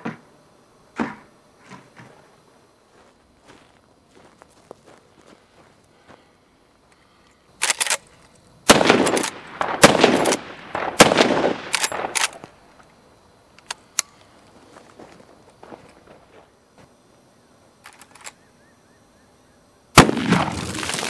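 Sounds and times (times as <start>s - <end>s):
rifle shots echoing: 8.7s - 12.4s, 20.0s - 21.0s.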